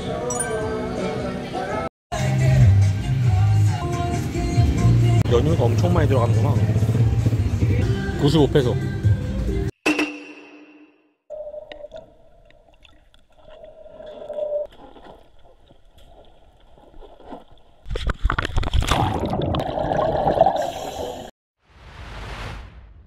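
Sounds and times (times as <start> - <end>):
exhaled bubbles rushing: 18.2 - 21.3.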